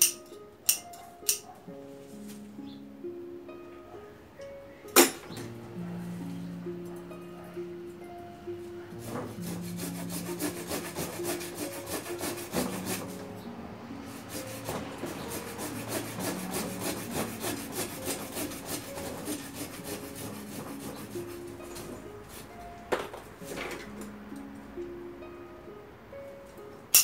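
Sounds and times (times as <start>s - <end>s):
hand saw cutting a branch: 9.0s - 13.2s, 14.2s - 22.6s.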